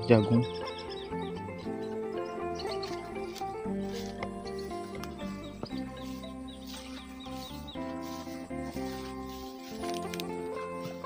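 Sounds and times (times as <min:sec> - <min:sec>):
background music melody: 0:00.0 - 0:11.0
high chirp-like notes: 0:00.0 - 0:11.0.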